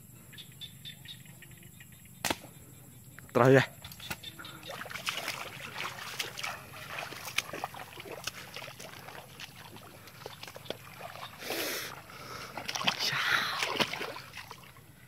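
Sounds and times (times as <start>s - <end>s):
footsteps wading through water: 3.8s - 15.0s
loud splash: 4.7s - 14.8s.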